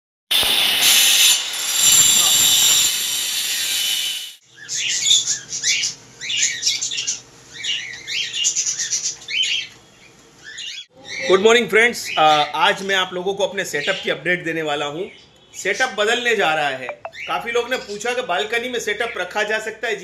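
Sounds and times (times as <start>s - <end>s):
power tool grinding masonry: 0.3s - 4.4s
caged birds chirping: 4.4s - 13.1s.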